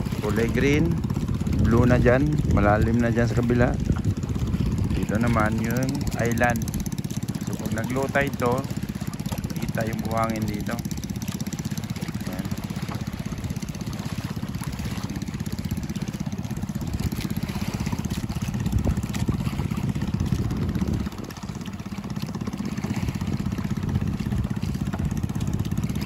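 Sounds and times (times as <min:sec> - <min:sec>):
boat engine throbbing: 0:00.0 - 0:26.0.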